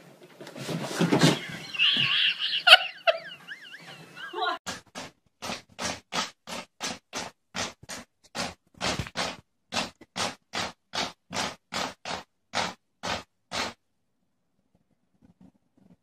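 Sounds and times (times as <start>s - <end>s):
rhythmic scratching strokes: 1.0s - 13.8s.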